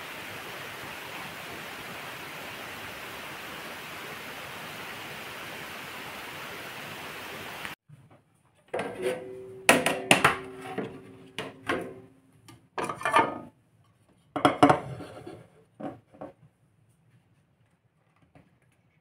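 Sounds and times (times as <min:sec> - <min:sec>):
metal baking tray knocking: 0:08.8 - 0:12.0
glass plate clattering: 0:12.8 - 0:13.5.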